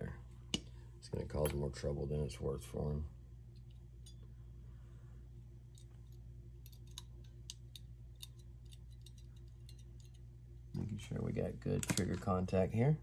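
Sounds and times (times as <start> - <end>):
steady low hum: 0.0 - 13.0
small parts clicking and tapping: 5.7 - 10.3.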